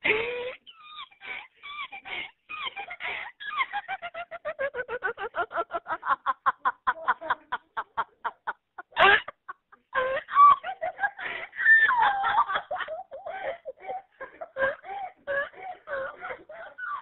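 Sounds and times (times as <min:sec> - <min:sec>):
woman laughing hard: 0:00.0 - 0:17.0.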